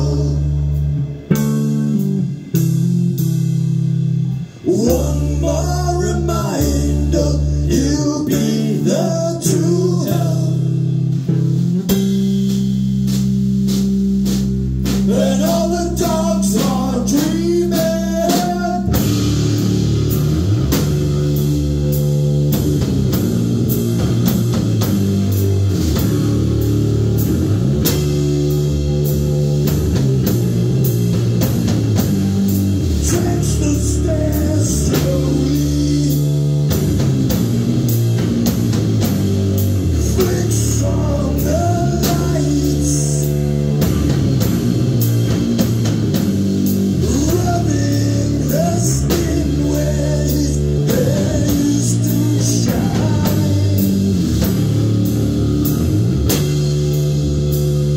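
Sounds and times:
man singing: 0.0 - 0.8, 4.6 - 10.9, 15.0 - 19.2, 33.0 - 36.5, 40.0 - 43.5, 47.0 - 54.2
drum kit: 0.0 - 57.9
electric bass: 0.0 - 57.9.

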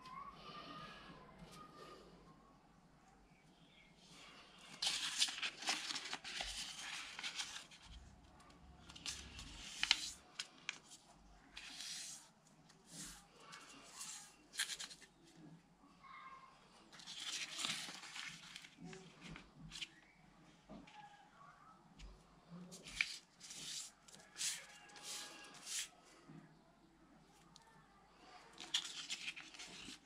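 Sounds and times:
paper rustling and crackling: 4.7 - 15.1, 16.9 - 20.1, 22.7 - 25.9, 28.5 - 30.0.

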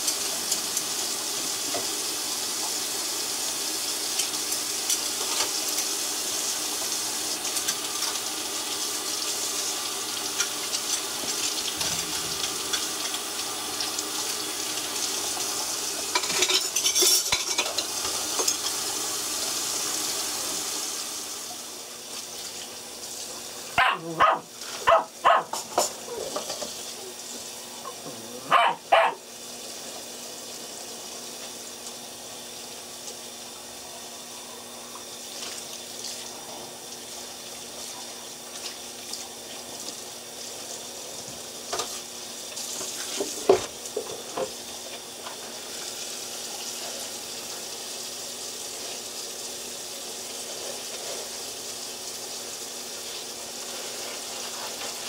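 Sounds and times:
puppy yipping: 23.8 - 26.3, 27.8 - 29.2.

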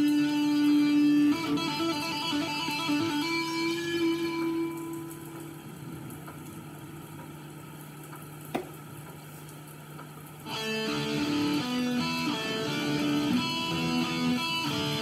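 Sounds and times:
electric guitar picked notes: 0.0 - 5.7, 10.4 - 15.0
electric guitar hum: 0.0 - 9.1, 10.3 - 15.0.

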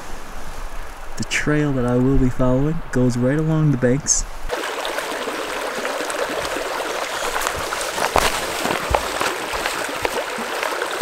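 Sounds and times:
river rushing over rocks: 4.5 - 11.0.

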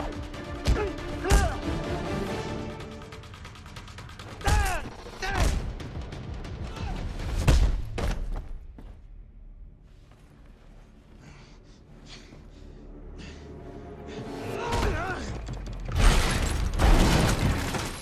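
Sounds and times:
punch and kick impacts: 7.2 - 8.5.

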